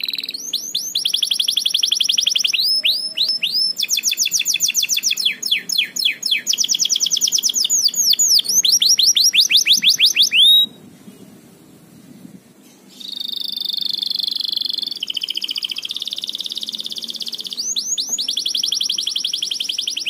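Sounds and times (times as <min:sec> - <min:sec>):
canary singing trills: 0:00.0 - 0:11.3, 0:12.6 - 0:20.0.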